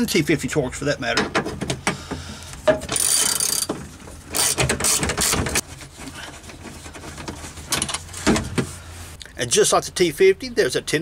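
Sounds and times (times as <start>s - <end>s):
socket ratchet clicking: 2.9s - 3.7s, 4.4s - 5.4s.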